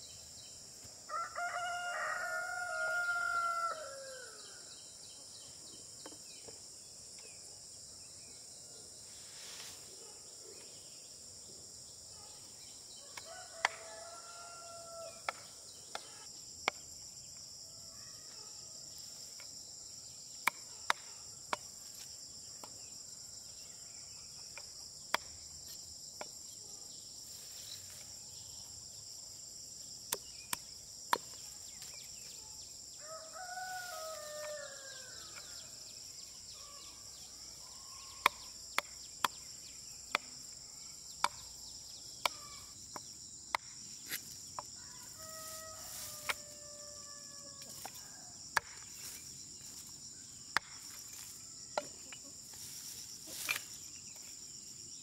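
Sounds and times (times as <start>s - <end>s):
high drone of insects: 0.0s - 55.0s
rooster crowing: 1.1s - 4.5s, 13.0s - 15.2s, 33.0s - 35.7s, 44.8s - 48.3s.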